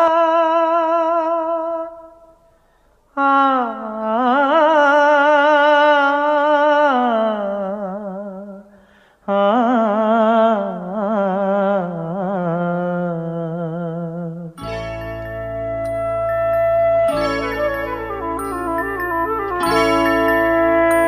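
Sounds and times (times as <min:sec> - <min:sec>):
wordless singing voice: 0:00.0 - 0:14.6.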